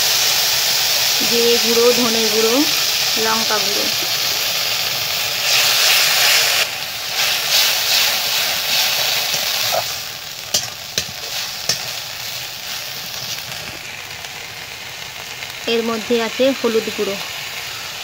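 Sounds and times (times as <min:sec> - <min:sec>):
paste sizzling in oil: 0:00.0 - 0:18.0
metal spatula scraping pan: 0:07.2 - 0:13.8.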